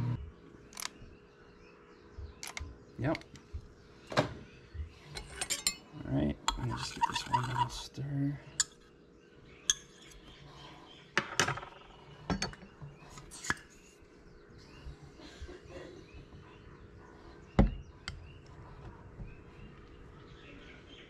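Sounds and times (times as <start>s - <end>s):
metal clinking against glass: 5.2s - 5.9s.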